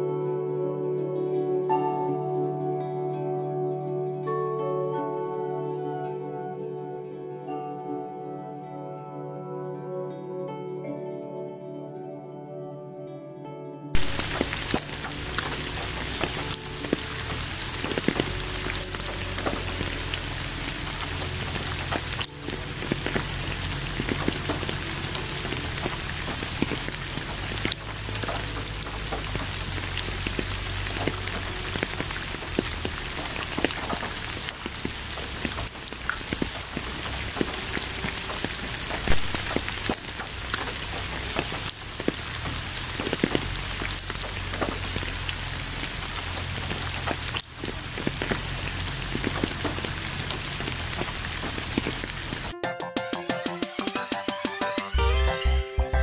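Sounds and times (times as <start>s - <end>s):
rain falling: 14.0s - 52.6s.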